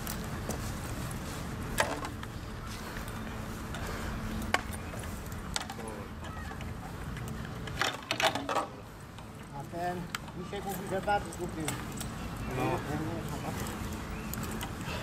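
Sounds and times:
steady background noise: 0.0s - 15.0s
harness buckles clinking: 10.4s - 15.0s.

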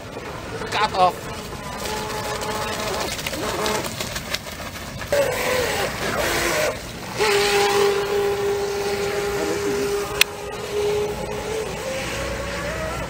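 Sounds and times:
electric boat motor whine: 0.0s - 4.1s, 5.0s - 13.0s
water hissing off hull: 0.0s - 13.0s.

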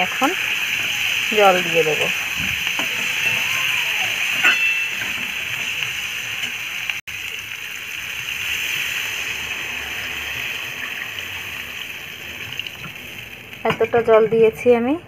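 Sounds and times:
water pouring into a pan: 0.0s - 13.9s
metal spatula stirring: 4.3s - 5.7s.

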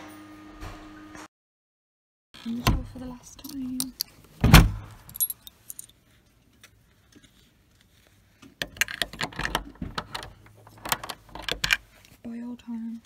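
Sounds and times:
door shutting with thud: 4.4s - 4.9s
keys jangling: 5.0s - 6.0s.

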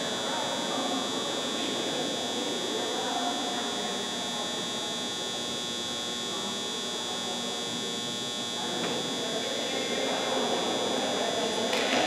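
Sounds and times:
faint indistinct voices: 0.0s - 12.0s
steady high-pitched whine: 0.0s - 12.0s.

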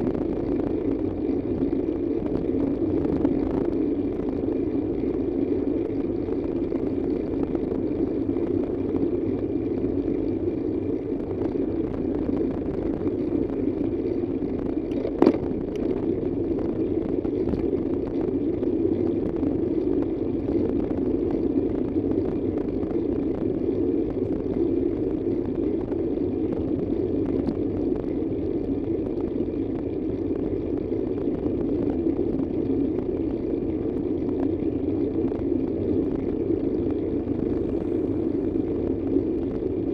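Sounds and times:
vehicle road and engine noise: 0.0s - 39.9s.

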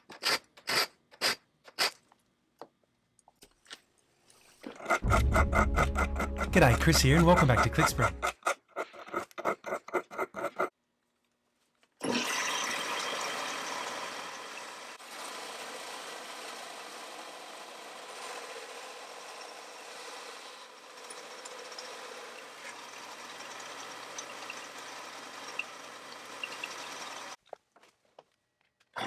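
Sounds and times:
hand file rasping on steel: 4.7s - 10.7s.

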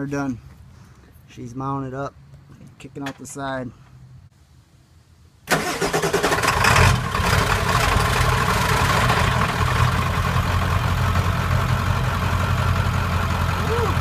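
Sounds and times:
diesel engine starting and idling: 5.5s - 14.0s.

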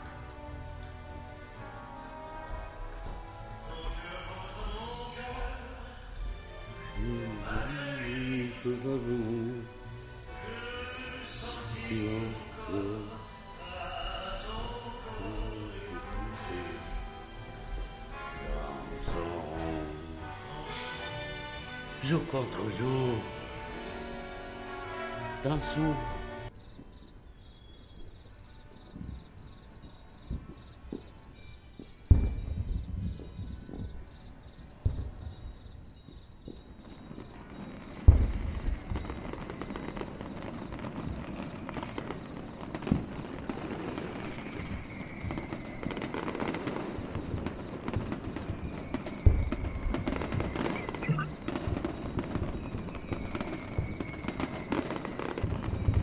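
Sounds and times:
firework crackling: 0.0s - 26.5s, 34.8s - 56.0s
falling whistles: 2.1s - 56.0s
firework booms: 2.4s - 27.0s, 31.8s - 56.0s
high pulsing chirp: 49.7s - 51.8s.

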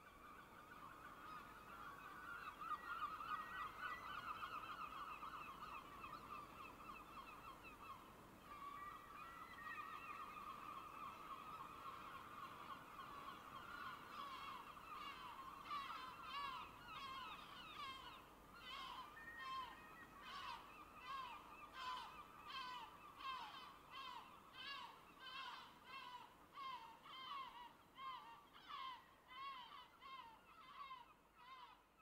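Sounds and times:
gulls calling: 8.6s - 31.7s.

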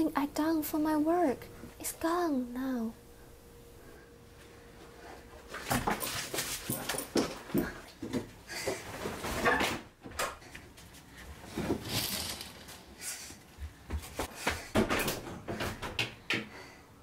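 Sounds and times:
rustling: 10.9s - 13.3s.

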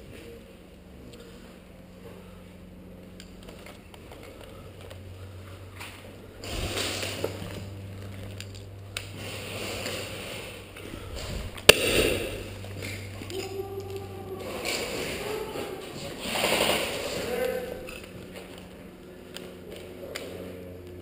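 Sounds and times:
sharp crack: 11.6s - 14.0s.

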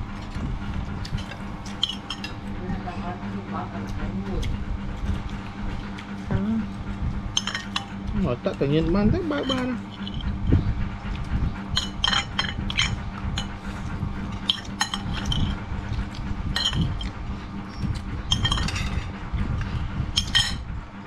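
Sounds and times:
spoon clinking against ceramic bowl: 16.6s - 17.0s, 18.3s - 19.0s.

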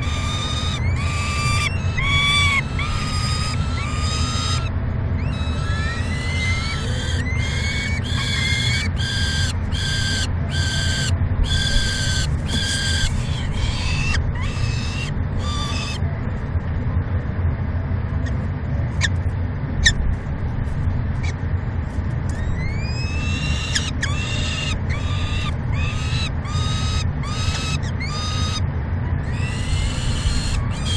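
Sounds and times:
falcon chicks begging calls: 0.0s - 16.0s, 22.3s - 28.6s, 29.2s - 30.9s
steady low rumble: 0.0s - 30.9s.

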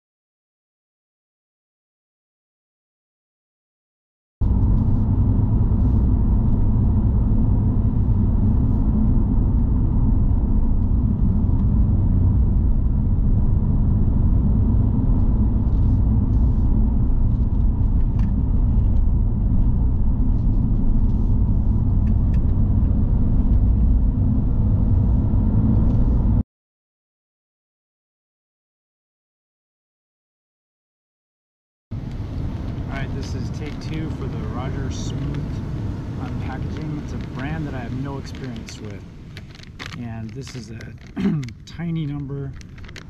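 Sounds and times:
car engine and tyre noise: 4.4s - 26.4s, 31.9s - 43.0s.

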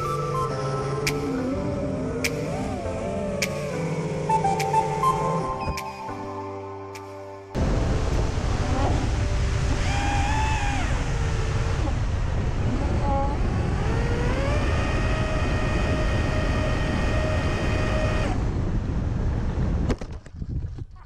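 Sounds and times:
drone motors whining: 0.0s - 5.8s, 9.5s - 18.6s
wind rumble: 7.6s - 21.0s.

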